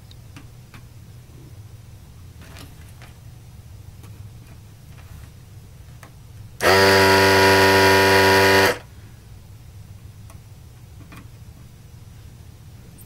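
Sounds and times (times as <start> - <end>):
vacuum pump buzzing: 6.6 - 8.9.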